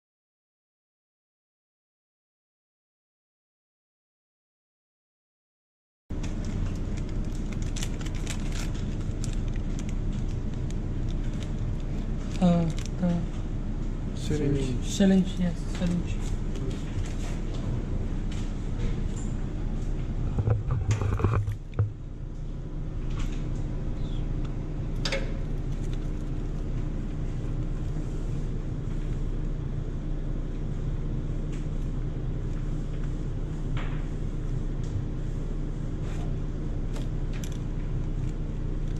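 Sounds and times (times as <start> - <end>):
low background hum: 6.1 - 38.9
plastic bag crinkling: 6.2 - 13.1
plastic crackle of tubes: 6.2 - 13.2.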